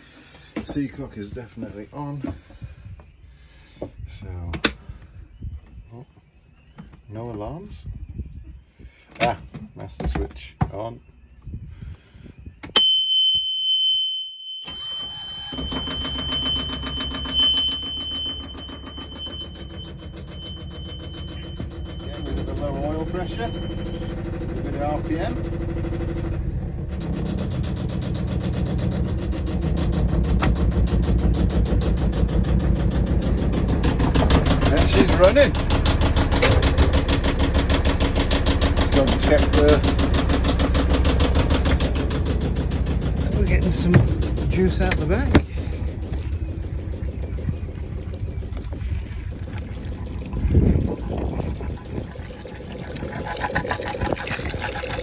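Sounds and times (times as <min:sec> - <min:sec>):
diesel engine chugging: 0:14.7 - 0:55.0
exhaust water splashing: 0:27.1 - 0:55.0
low thump: 0:43.8 - 0:44.4.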